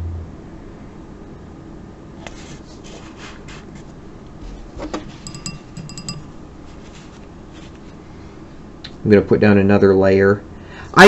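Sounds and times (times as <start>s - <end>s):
soft rubbing: 6.6s - 8.0s.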